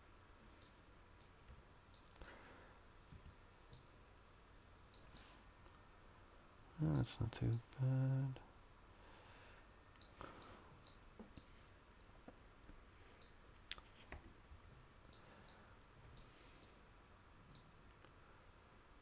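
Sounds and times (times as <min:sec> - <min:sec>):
faint computer mouse clicks: 0:10.0 - 0:11.5.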